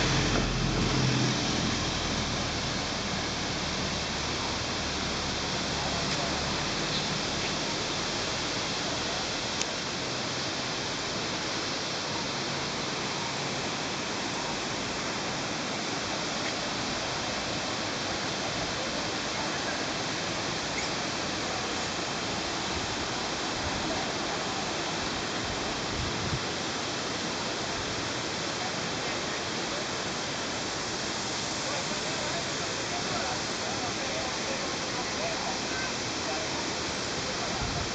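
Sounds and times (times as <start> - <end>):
waterfall rushing: 0.0 - 37.9
faint click: 9.6 - 9.8.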